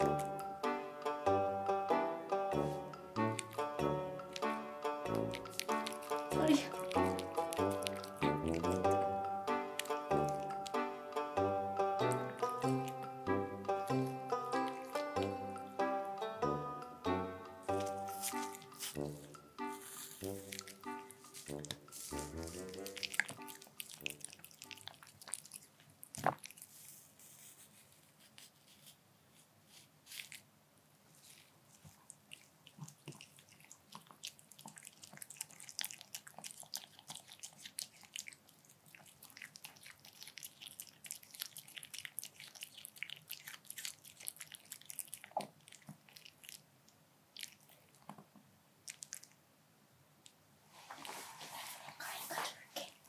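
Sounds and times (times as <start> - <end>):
dog chewing crunchy food: 2.6 - 10.9, 11.8 - 15.8, 17.7 - 27.1, 31.1 - 46.7, 47.3 - 49.4.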